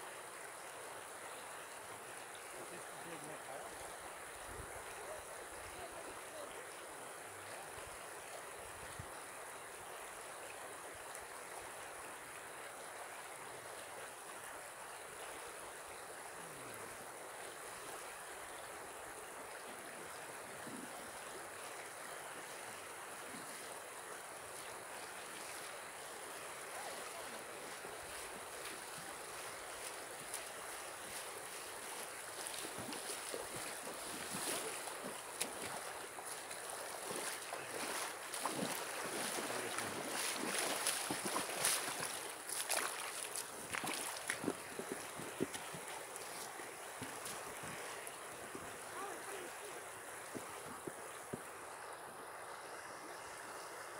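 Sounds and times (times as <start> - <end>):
shallow river running: 0.0 - 53.9
person wading through water: 19.5 - 51.6.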